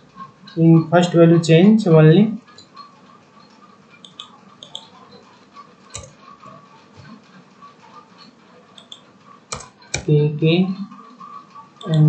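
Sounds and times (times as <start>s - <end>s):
keyboard and mouse clicks: 3.5s - 5.0s, 5.9s - 7.2s, 8.2s - 10.1s, 11.8s - 12.0s.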